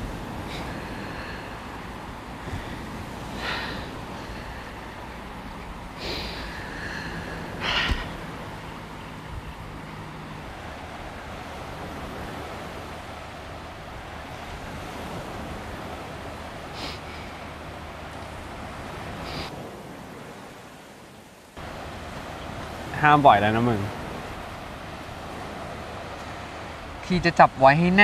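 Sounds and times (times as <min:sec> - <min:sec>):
surf: 0:00.0 - 0:21.0, 0:21.6 - 0:28.0
wind: 0:00.0 - 0:28.0
person sniffling: 0:06.0 - 0:06.6, 0:16.8 - 0:17.1.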